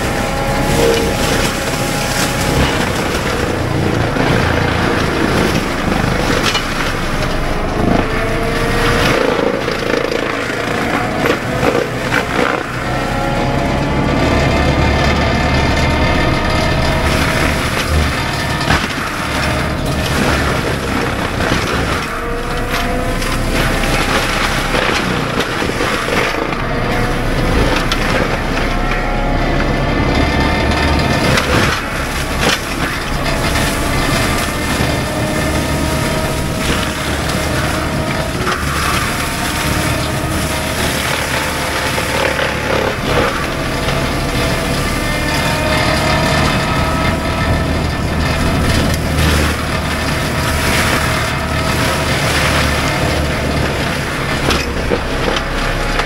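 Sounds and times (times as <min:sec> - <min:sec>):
cracking and crunching of brush: 0:00.0 - 0:56.0
diesel engine running under load: 0:00.0 - 0:56.0
mulcher drum spinning: 0:00.0 - 0:56.0.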